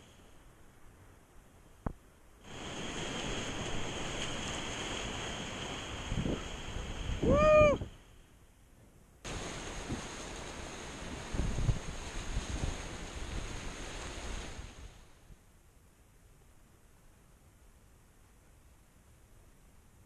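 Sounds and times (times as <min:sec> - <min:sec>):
whitewater rapids rushing: 0:02.5 - 0:07.8
high-pitched whoop: 0:07.2 - 0:07.9.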